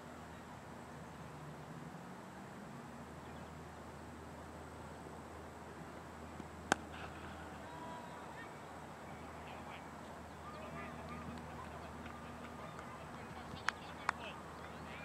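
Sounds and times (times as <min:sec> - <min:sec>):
faint distant calls: 0:06.3 - 0:15.0
cricket bat hitting ball: 0:06.7 - 0:06.9.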